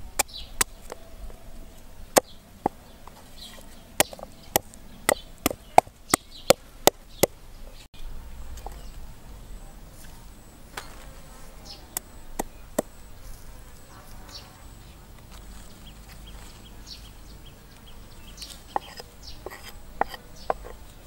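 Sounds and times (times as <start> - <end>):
cleaver chopping on wooden board: 4.0 - 7.0.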